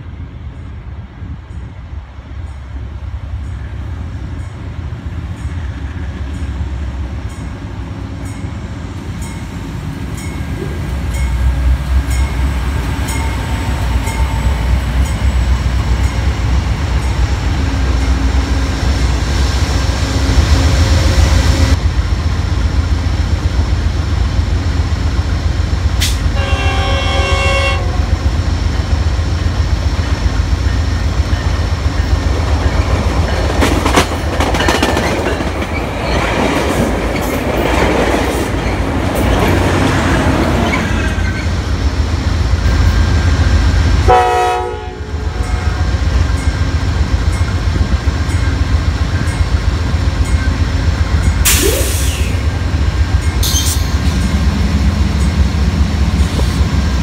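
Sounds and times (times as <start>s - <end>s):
diesel locomotive engine rumble: 0.0s - 57.0s
locomotive horn blast: 26.0s - 28.3s, 44.0s - 46.0s.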